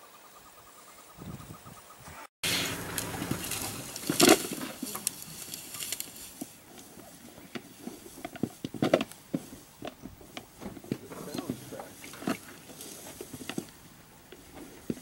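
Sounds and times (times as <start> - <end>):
scuffling rustle in dry grass: 2.5 - 10.4, 11.1 - 15.0.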